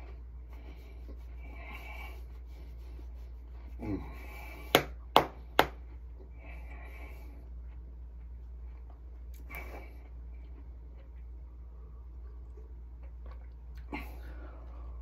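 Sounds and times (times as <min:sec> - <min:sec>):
hand slapping belly: 0:04.7 - 0:05.8.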